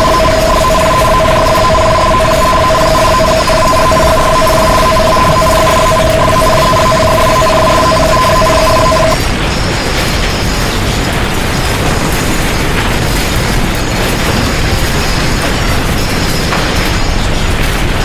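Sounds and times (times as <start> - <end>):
two-tone electronic warning beep: 0.0 - 9.2
earthquake rumbling and rattling: 0.0 - 18.0.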